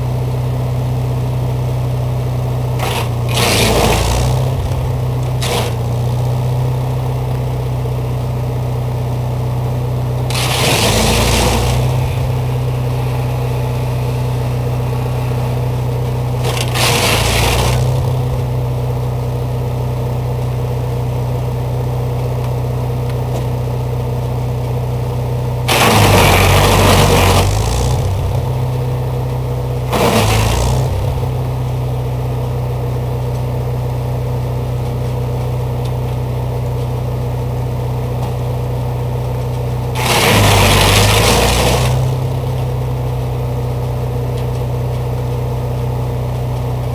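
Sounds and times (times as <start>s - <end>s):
engine running steadily: 0.0s - 46.9s
wood chipper shredding branches: 0.0s - 46.9s.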